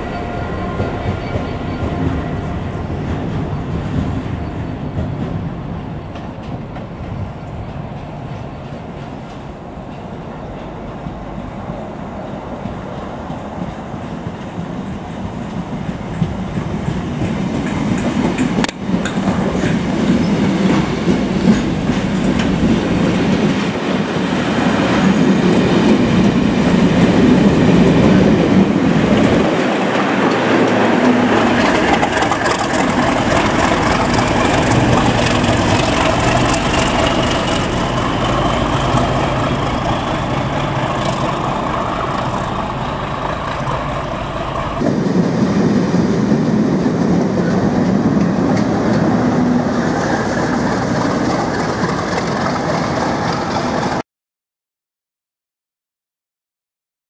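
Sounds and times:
diesel locomotive running: 0.0s - 54.0s
wheels clattering over rail joints: 25.1s - 45.0s, 49.8s - 54.0s.

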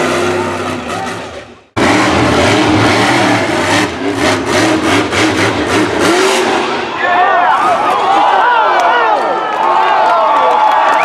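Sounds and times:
monster truck engine revving: 0.0s - 7.0s.

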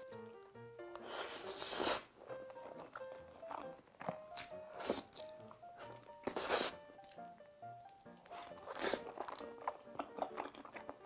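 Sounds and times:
chewing: 0.0s - 11.0s
soft lo-fi background music: 0.0s - 11.0s
slurping noodles: 1.0s - 2.1s.

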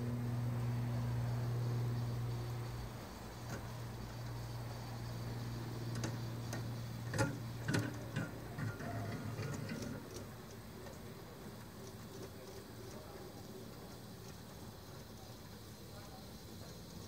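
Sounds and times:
model cable car motor hum: 0.0s - 17.0s.

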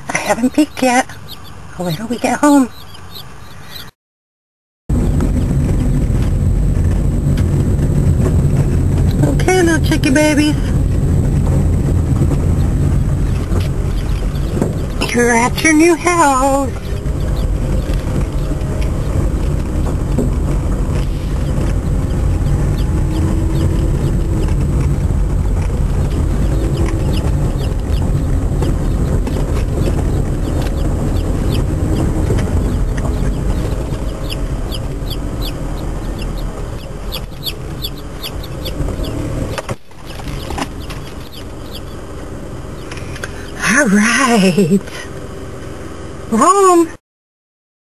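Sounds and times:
car driving rumble: 0.0s - 4.0s, 4.9s - 47.0s
chicks peeping: 0.5s - 3.9s, 12.6s - 15.1s, 16.6s - 19.7s, 21.0s - 25.0s, 25.6s - 39.3s, 39.9s - 42.1s.

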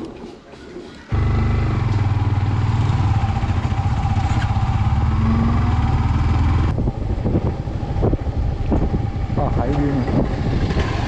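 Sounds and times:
motorcycle engine droning: 1.1s - 11.0s.

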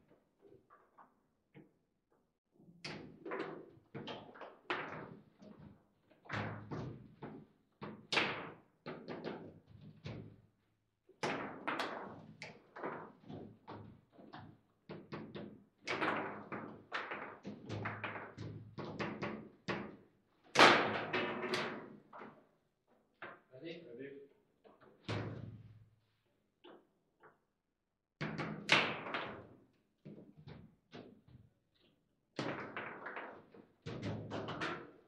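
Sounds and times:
foosball clacking against players: 32.4s - 35.0s.

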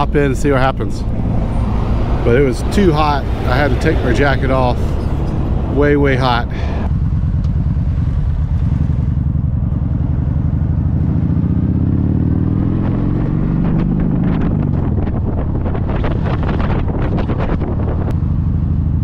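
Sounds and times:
motorcycle engine accelerating: 0.0s - 19.0s
wind buffeting microphone: 8.5s - 18.2s.

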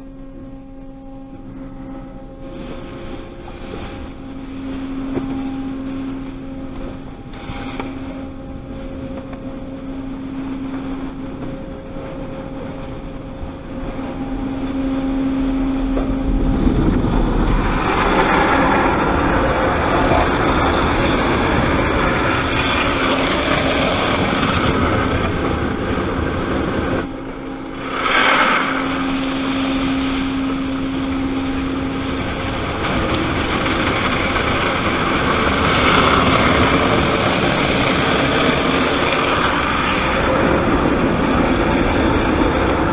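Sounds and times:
steady hum: 0.0s - 42.9s
water jets and brushes pounding car: 14.2s - 42.9s.

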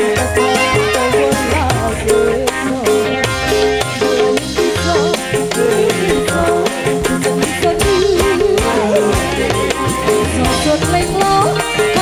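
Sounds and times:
drum and rattle beat: 0.0s - 12.0s
wavering melody: 0.0s - 12.0s.

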